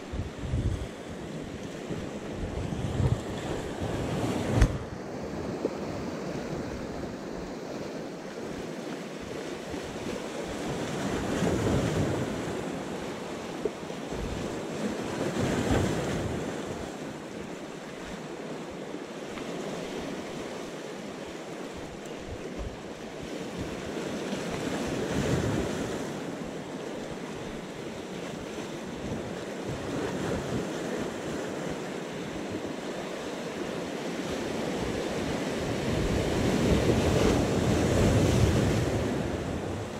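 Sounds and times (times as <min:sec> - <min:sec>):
wind buffeting microphone: 0:00.0 - 0:07.2, 0:33.6 - 0:39.9.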